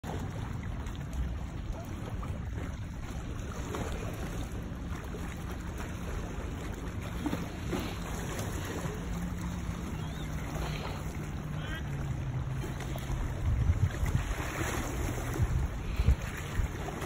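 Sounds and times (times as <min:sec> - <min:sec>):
small waves lapping on stones: 0:00.0 - 0:17.0
wind buffeting microphone: 0:00.1 - 0:17.0.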